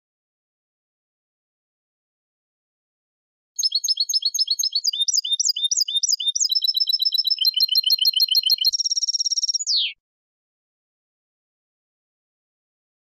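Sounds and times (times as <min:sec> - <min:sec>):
dry buzzing bird trill: 0:03.6 - 0:09.9
goldfinch singing: 0:03.6 - 0:10.0.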